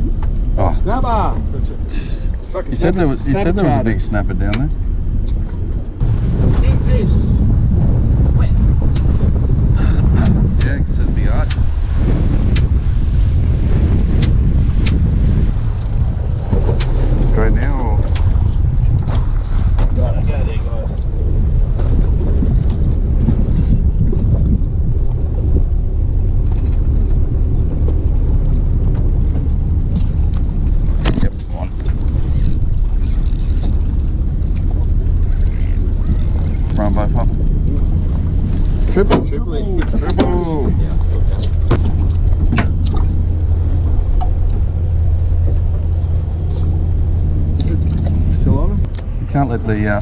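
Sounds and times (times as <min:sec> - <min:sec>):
boat motor idling: 0:00.0 - 0:10.4, 0:15.5 - 0:50.0
wind buffeting microphone: 0:00.0 - 0:50.0
faint clicks: 0:31.8 - 0:38.7.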